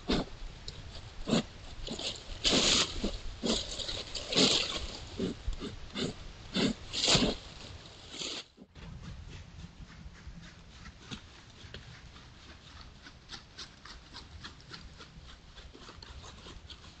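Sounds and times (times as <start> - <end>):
deer rustling through dry leaves: 1.7 - 5.2, 6.8 - 9.6.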